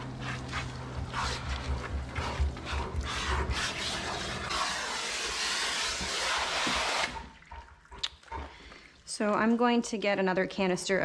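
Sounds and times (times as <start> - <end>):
hose water spraying: 0.0 - 7.4.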